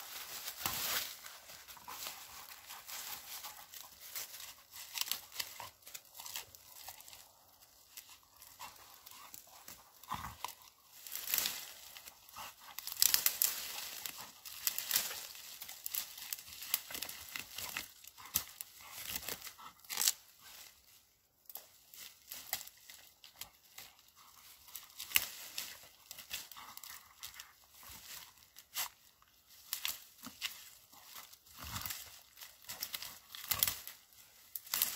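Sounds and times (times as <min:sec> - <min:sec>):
dry leaves rustling: 0:00.0 - 0:34.9
twigs crackling and snapping: 0:00.0 - 0:34.9.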